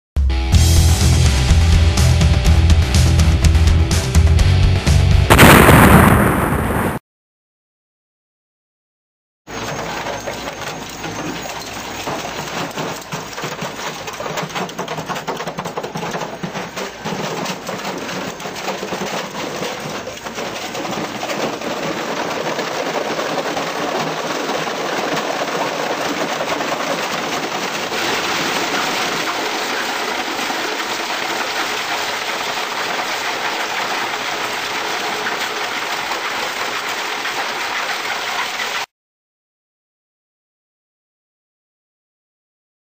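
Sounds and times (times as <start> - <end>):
shredder crunching plastic: 9.5 - 38.8
shredder machine running: 9.5 - 38.8.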